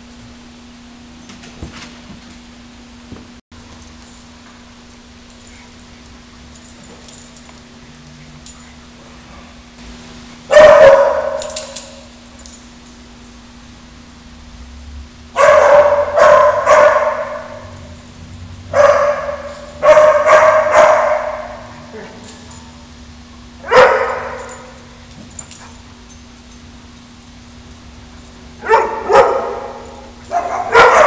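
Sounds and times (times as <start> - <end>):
dog barking in echoing room: 10.4 - 12.2, 15.3 - 22.8, 23.6 - 26.1, 28.5 - 31.0.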